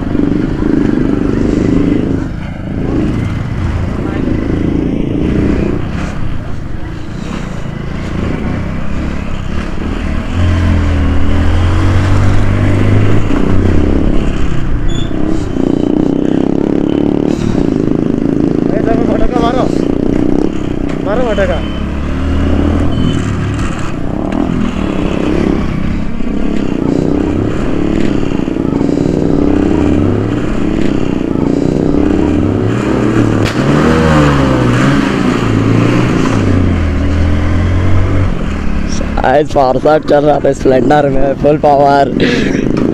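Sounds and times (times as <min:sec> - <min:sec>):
motorcycle engine riding: 0:00.0 - 0:42.9
exhaust pop: 0:33.2 - 0:33.9.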